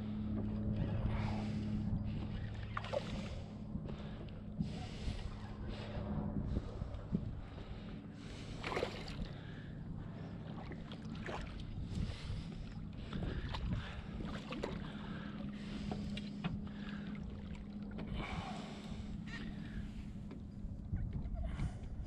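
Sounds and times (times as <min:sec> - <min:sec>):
wind on microphone: 0:00.0 - 0:09.4, 0:10.3 - 0:15.0, 0:18.0 - 0:22.0
steady low hum: 0:00.0 - 0:22.0.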